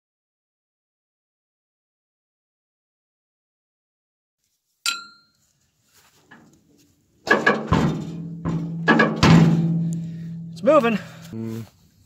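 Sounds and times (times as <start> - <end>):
metallic clink: 4.8 - 5.4
heavy blows on steel tank: 7.4 - 10.6.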